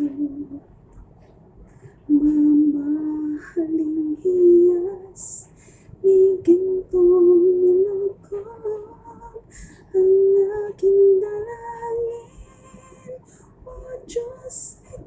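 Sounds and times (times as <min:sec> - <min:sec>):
woman humming a melody: 0:00.0 - 0:00.6, 0:02.1 - 0:05.4.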